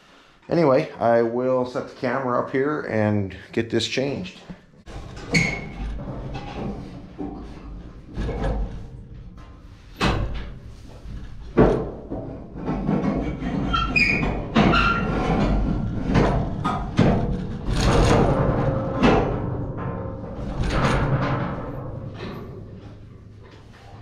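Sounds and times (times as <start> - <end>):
metal knocks and clatter: 4.9 - 24.0.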